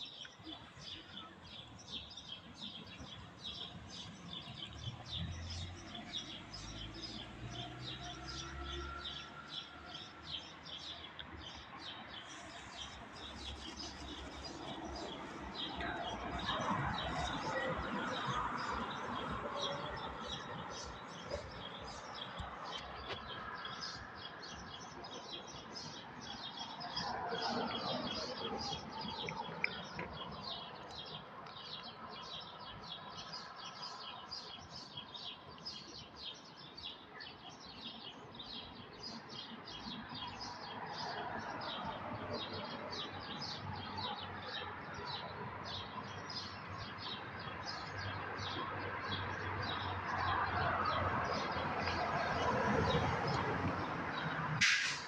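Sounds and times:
small birds chirping: 0.0s - 54.6s.

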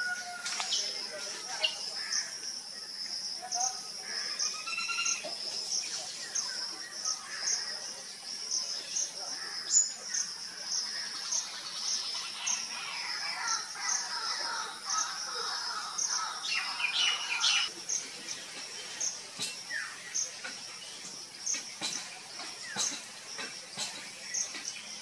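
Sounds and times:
forest birds calling: 0.0s - 25.0s
insects droning: 0.0s - 25.0s.

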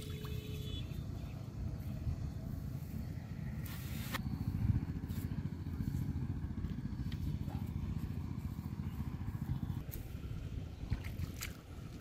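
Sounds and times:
wind buffeting microphone: 4.2s - 12.0s.

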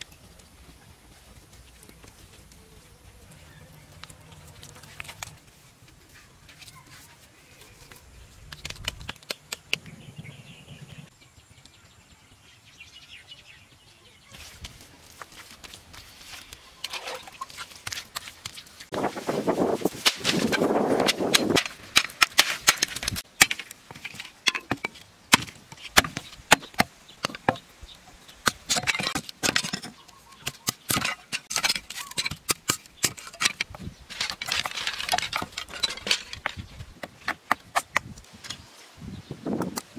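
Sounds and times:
machete splitting bamboo: 20.0s - 27.6s.

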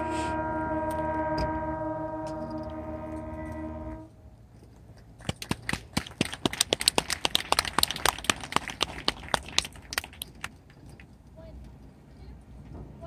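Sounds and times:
marching band sustained chord: 0.0s - 4.1s
audience clapping: 5.2s - 10.5s.

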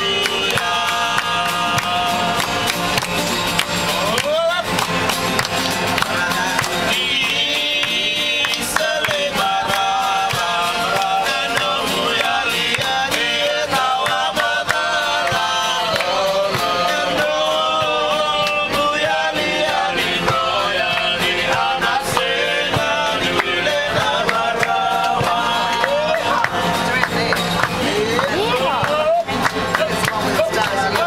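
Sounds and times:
acoustic guitar strumming: 0.0s - 31.0s
men singing in a group: 0.0s - 31.0s.

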